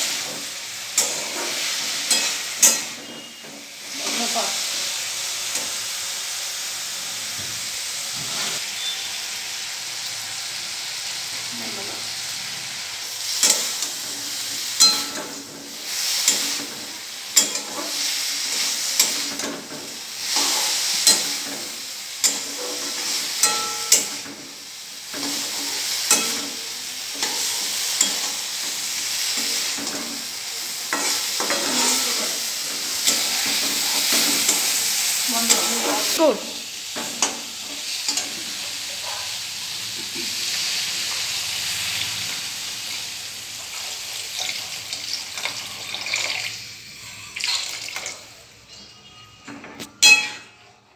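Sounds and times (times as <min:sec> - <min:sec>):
vegetables sizzling in a pan: 0:00.0 - 0:50.9
metal spatula scraping a pan: 0:01.0 - 0:04.4, 0:14.8 - 0:24.3, 0:25.1 - 0:30.3, 0:30.9 - 0:36.2.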